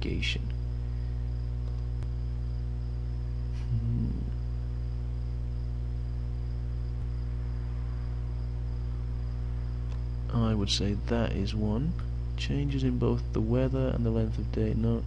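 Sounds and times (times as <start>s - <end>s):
electrical hum: 0.0s - 15.0s
faint high whine: 0.0s - 15.0s
person murmuring: 3.6s - 4.4s.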